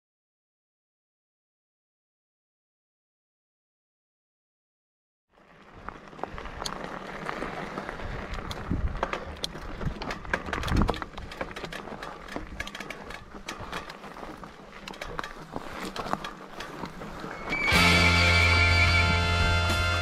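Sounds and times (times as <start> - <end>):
tyres crunching on gravel: 5.3 - 20.0
bike clicking and rattling: 5.4 - 18.9
bike thumping over bumps: 8.3 - 17.9.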